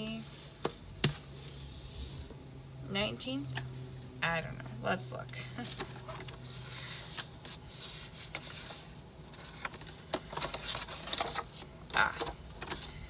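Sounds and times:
paper pages turning: 0:05.6 - 0:13.0.

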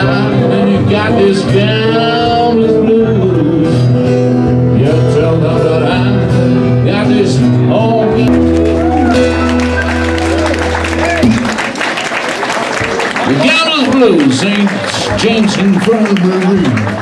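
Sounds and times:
blues harmonica: 0:00.0 - 0:11.5
piano accompaniment: 0:00.0 - 0:11.8
acoustic guitar: 0:00.0 - 0:12.0.

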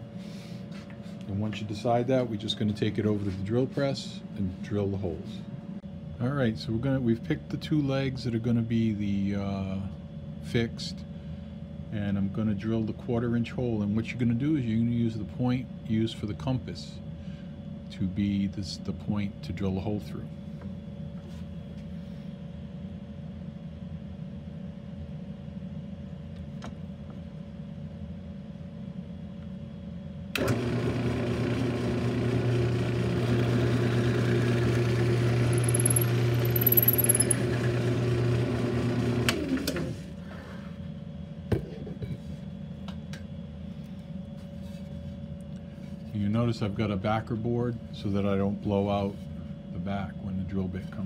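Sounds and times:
drill press motor running: 0:30.4 - 0:40.1
drill bit boring through wood: 0:33.7 - 0:39.0.

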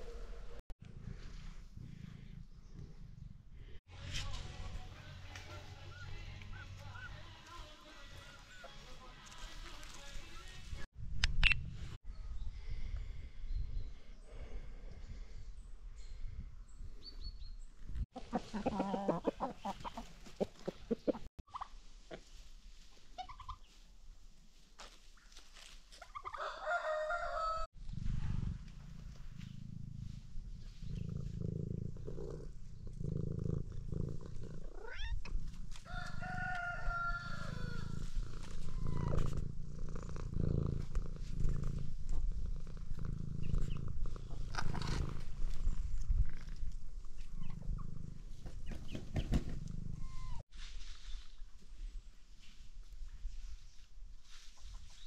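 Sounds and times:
rooster crowing: 0:26.3 - 0:27.7, 0:35.8 - 0:38.0
cat purring: 0:27.8 - 0:35.6, 0:37.8 - 0:46.6, 0:47.2 - 0:48.6.

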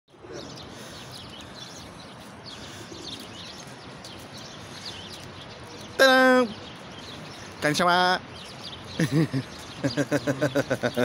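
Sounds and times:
city background noise: 0:00.1 - 0:11.0
small birds chirping: 0:00.1 - 0:11.0.

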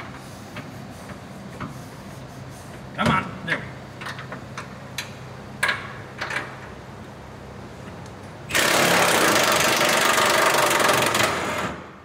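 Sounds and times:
impact wrench hammering: 0:08.5 - 0:11.8.

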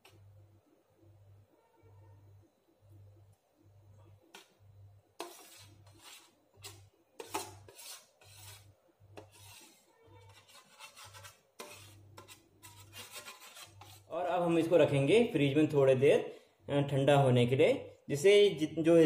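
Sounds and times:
metal spoon scraping steel bowl: 0:05.2 - 0:14.1.

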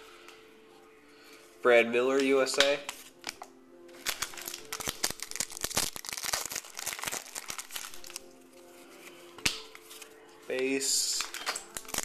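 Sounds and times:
foil wrapper tearing and crinkling: 0:04.0 - 0:08.4, 0:11.2 - 0:12.0.

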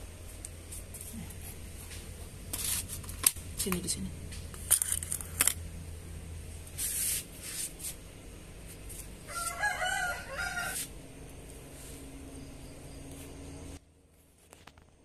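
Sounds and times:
rooster crowing: 0:09.2 - 0:10.9.

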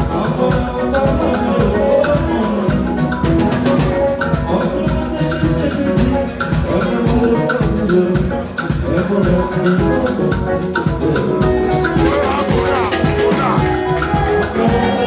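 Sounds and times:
drum kit fast beat: 0:00.0 - 0:15.0
electric guitar lines: 0:10.5 - 0:15.0
shaker or hi-hat ticking: 0:12.0 - 0:15.0.

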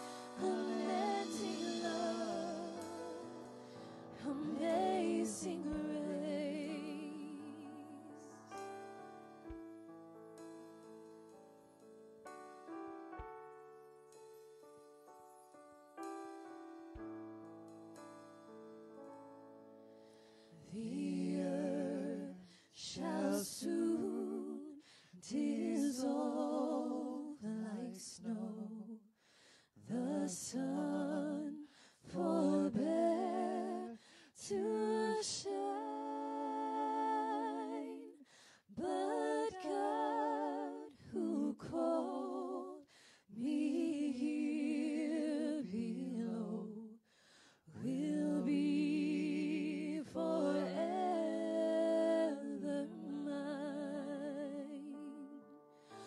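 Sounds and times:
woman singing worship song: 0:00.0 - 0:08.3, 0:20.6 - 0:29.1, 0:29.7 - 0:47.0, 0:47.6 - 0:56.0.

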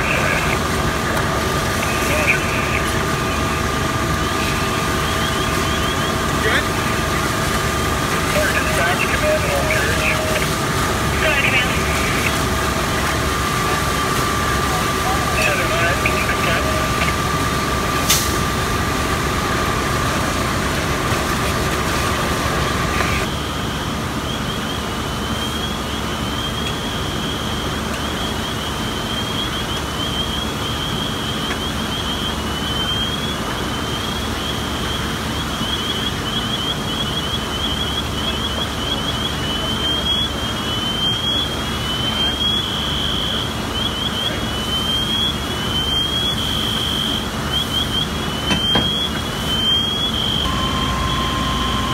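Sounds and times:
engine running: 0:00.0 - 0:51.9
electronic alarm chirps: 0:25.2 - 0:51.9
steady mid-pitched tone: 0:50.4 - 0:51.9.

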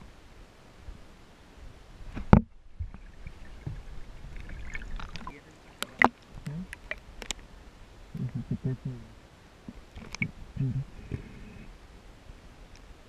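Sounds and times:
water sloshing and splashing: 0:02.1 - 0:07.6, 0:09.7 - 0:10.4.

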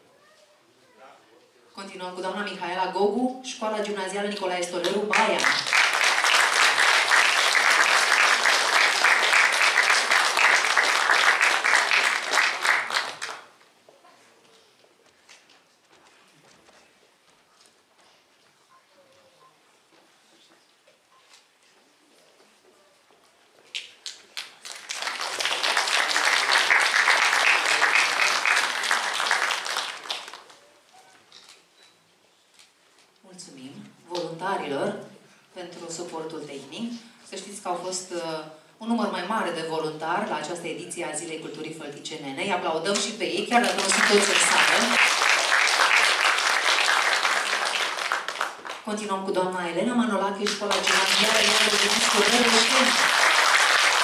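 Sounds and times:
audience applause: 0:05.1 - 0:13.5, 0:24.4 - 0:30.6, 0:43.6 - 0:48.8, 0:50.5 - 0:54.0.

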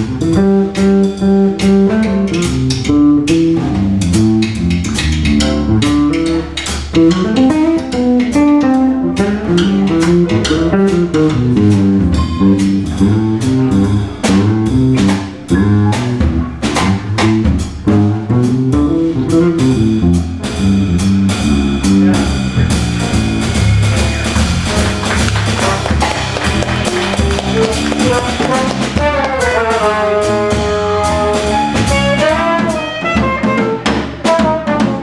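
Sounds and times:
electric bass melodic lines: 0:00.0 - 0:33.3
drum kit with cymbals: 0:00.0 - 0:35.0.

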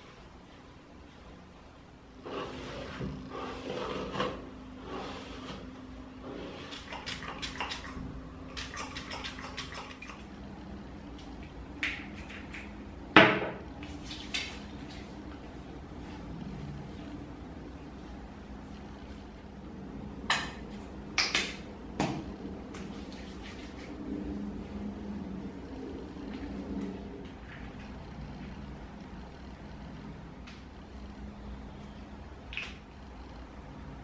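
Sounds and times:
towel rubbing against face: 0:22.9 - 0:27.2.

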